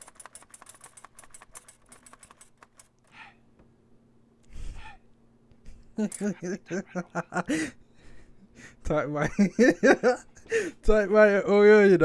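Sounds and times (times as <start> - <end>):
typewriter keys clacking: 0.0 - 3.1.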